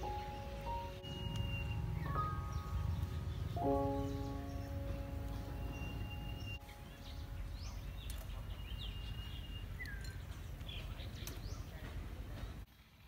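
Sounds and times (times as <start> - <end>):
thin steady high tone: 0.0 - 7.8
steady low rumble: 0.0 - 11.2
birds chirping: 0.0 - 13.0.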